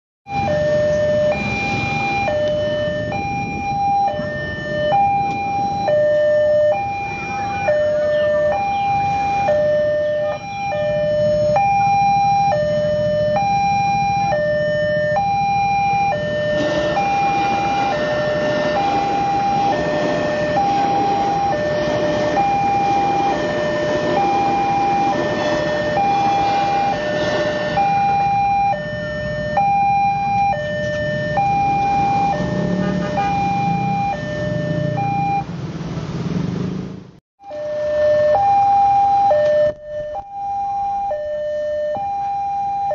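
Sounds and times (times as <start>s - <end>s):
two-tone crossing alarm chime: 0.3s - 35.5s, 37.4s - 42.9s
electric train rushing past: 16.4s - 29.0s.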